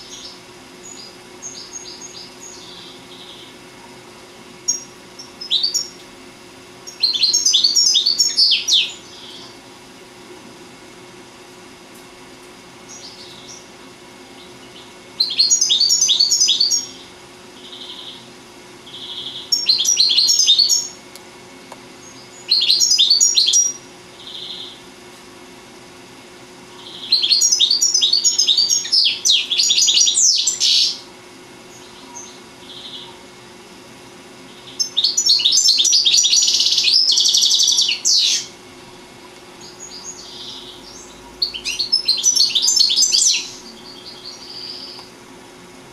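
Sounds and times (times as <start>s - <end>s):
bird twittering song: 0.0s - 3.6s, 4.6s - 6.0s, 6.8s - 9.6s, 12.9s - 13.7s, 14.4s - 18.3s, 18.9s - 21.0s, 22.0s - 24.8s, 26.8s - 31.1s, 31.7s - 33.2s, 34.5s - 38.6s, 39.6s - 45.1s.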